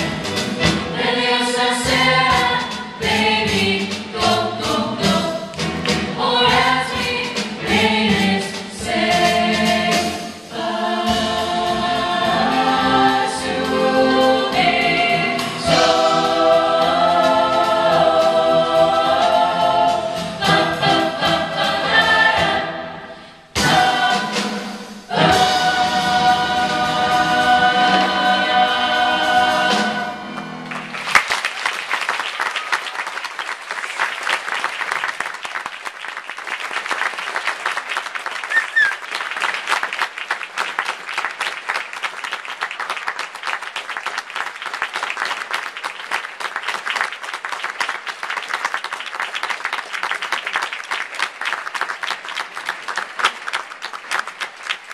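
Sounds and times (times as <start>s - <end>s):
audience applause: 30.4s - 54.9s.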